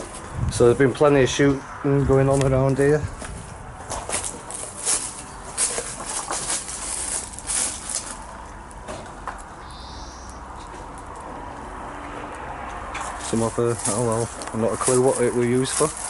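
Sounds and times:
footsteps in undergrowth: 1.4s - 9.2s, 12.6s - 16.0s
leaves and twigs crackling: 3.2s - 8.8s, 13.1s - 16.0s.

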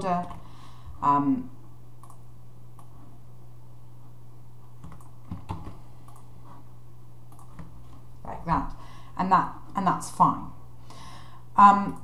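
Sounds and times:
steady hum: 0.0s - 12.0s
keyboard and mouse clicks: 2.0s - 2.2s, 4.8s - 6.3s, 7.3s - 7.8s.

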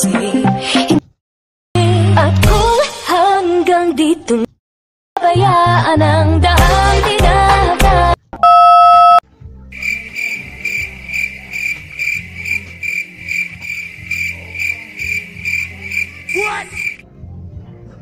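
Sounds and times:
music with singing: 0.0s - 1.1s, 1.8s - 4.5s, 5.2s - 8.2s, 9.3s - 18.0s
electronic beep: 8.4s - 9.2s
insect chirping: 9.8s - 17.0s.

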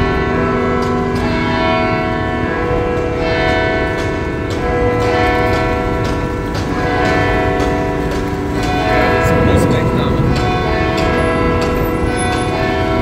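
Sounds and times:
church bells ringing: 0.0s - 13.0s
low rumble: 9.0s - 11.7s.

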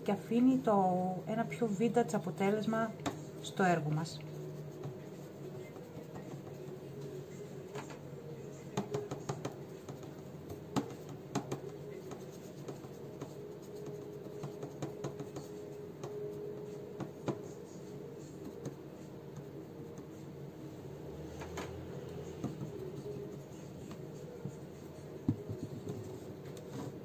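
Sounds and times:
steady low hum: 0.0s - 27.0s
paintbrush tapping and scraping: 1.7s - 20.4s, 21.2s - 27.0s.

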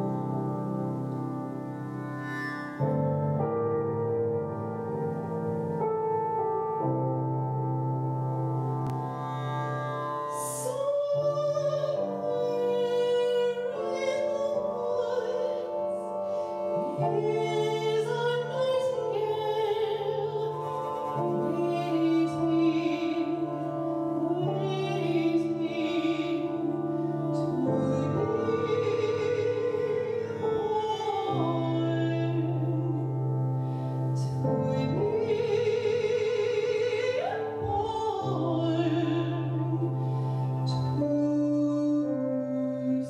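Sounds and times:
operatic soprano singing: 10.3s - 43.0s.

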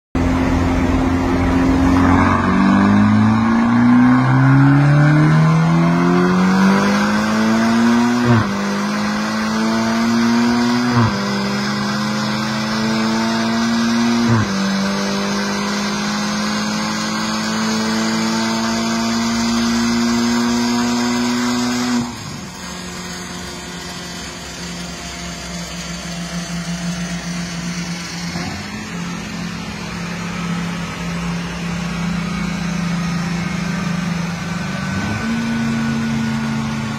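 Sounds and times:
car engine revving through gears: 0.2s - 36.9s.

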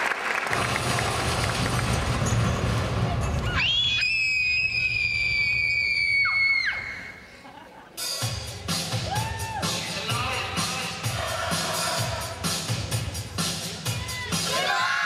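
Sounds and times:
applause: 0.0s - 2.2s
crowd noise: 0.0s - 15.0s
high-pitched scream: 3.5s - 7.2s.

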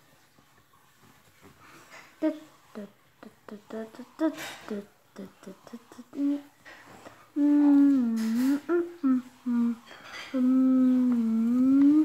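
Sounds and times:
person humming: 2.2s - 6.6s, 7.3s - 12.0s.

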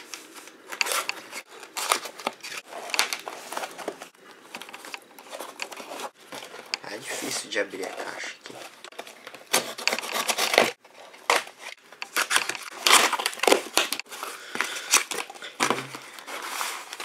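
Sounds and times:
paper rustling: 0.0s - 17.0s
knife cutting cardboard: 9.5s - 10.8s
cardboard flaps tearing: 9.5s - 14.0s.

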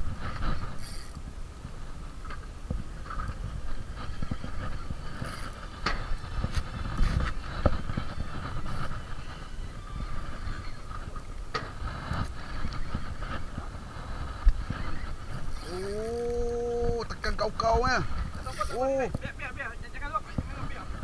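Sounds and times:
rough sea: 0.0s - 21.0s
wind buffeting microphone: 0.0s - 21.0s
fishing reel whirring and clicking: 0.4s - 1.3s, 3.1s - 11.4s, 14.5s - 16.7s, 18.3s - 19.1s.

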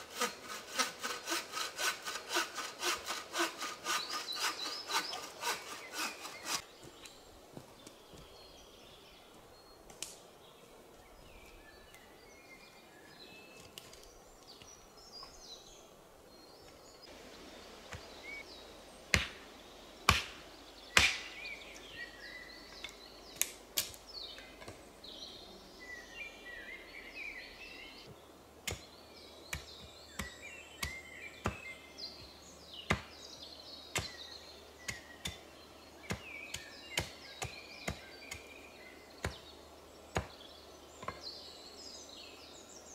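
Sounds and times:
small birds chirping: 3.0s - 42.9s
axe chopping wood: 19.1s - 19.4s, 20.1s - 21.4s, 29.5s - 31.7s, 32.9s - 33.2s, 34.0s - 34.2s, 36.1s - 38.5s, 39.2s - 39.5s, 40.2s - 40.4s.

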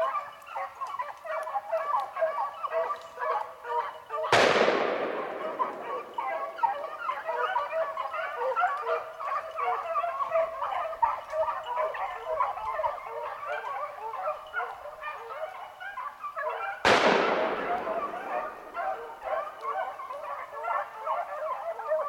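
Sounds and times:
hounds baying: 0.0s - 22.0s
gunshot echo: 4.4s - 7.1s, 16.9s - 19.4s.

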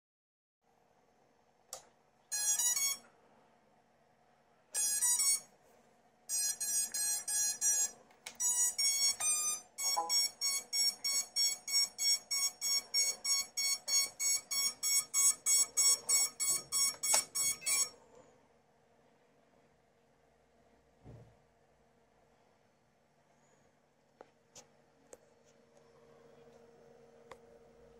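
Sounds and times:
electronic beeps: 6.3s - 17.9s.

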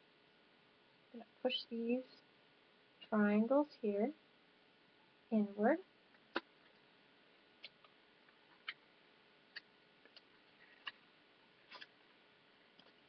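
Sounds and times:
paper crackling and ticking: 9.5s - 13.0s.

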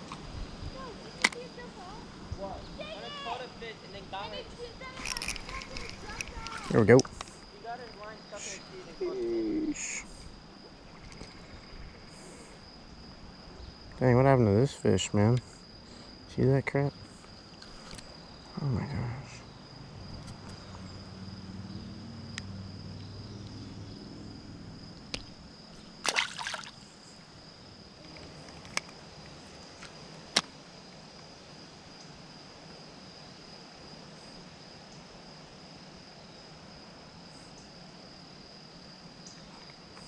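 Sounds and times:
high insect trilling: 0.7s - 30.3s.

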